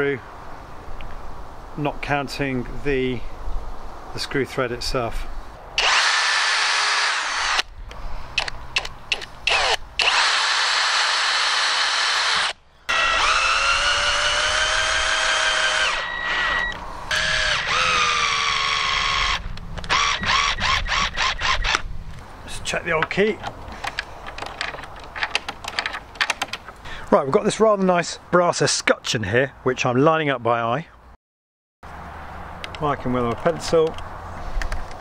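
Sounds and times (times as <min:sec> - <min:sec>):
cordless drill motor whine: 0:05.8 - 0:07.7, 0:09.4 - 0:21.8
drill trigger bursts: 0:05.8 - 0:07.7, 0:09.1 - 0:21.8.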